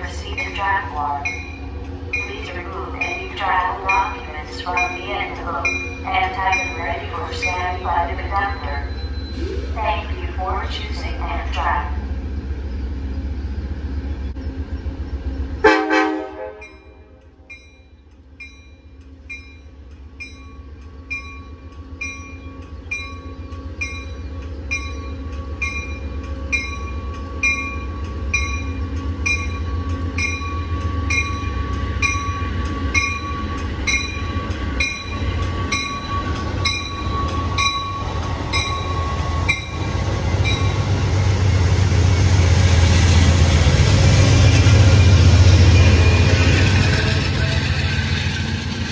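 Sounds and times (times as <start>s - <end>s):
train bell ringing: 0.0s - 11.8s, 16.6s - 41.4s, 44.6s - 48.3s
train rumble: 0.0s - 48.9s
train horn blast: 15.6s - 17.2s.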